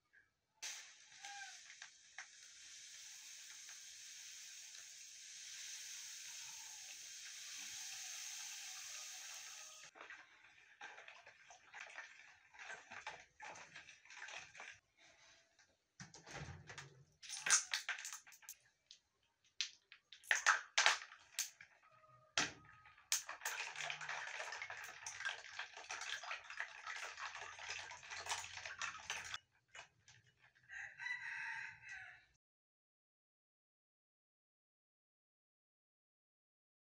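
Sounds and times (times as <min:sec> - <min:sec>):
liquid pouring into plastic bowl: 0:23.1 - 0:29.9.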